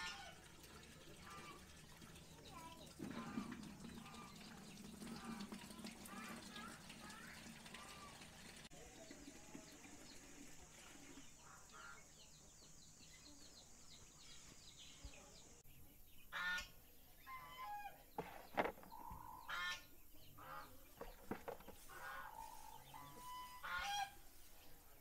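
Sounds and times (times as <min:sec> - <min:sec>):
geese honking: 0:16.3 - 0:18.0, 0:21.9 - 0:24.2.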